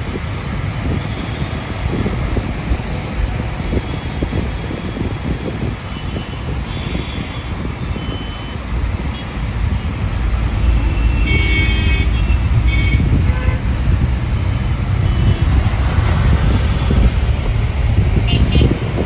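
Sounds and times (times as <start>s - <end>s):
bus engine and road rumble: 0.0s - 19.0s
vehicle horns honking: 3.8s - 9.4s, 10.6s - 13.8s, 15.0s - 15.7s, 18.2s - 19.0s.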